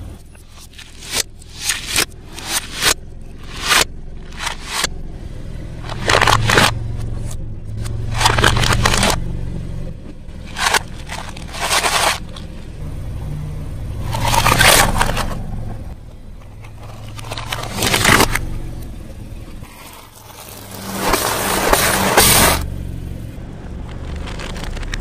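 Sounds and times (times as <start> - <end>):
steady low rumble: 0.0 - 25.0
plastic toy cars crunching: 0.4 - 5.0, 5.8 - 9.2, 10.4 - 12.7, 14.0 - 15.4, 16.5 - 18.5, 19.6 - 22.6, 23.8 - 25.0.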